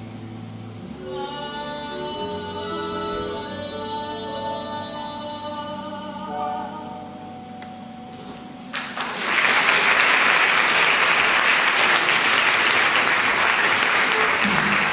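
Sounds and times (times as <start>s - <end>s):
held notes of song accompaniment: 0.0s - 8.7s
audience applause: 8.7s - 14.9s.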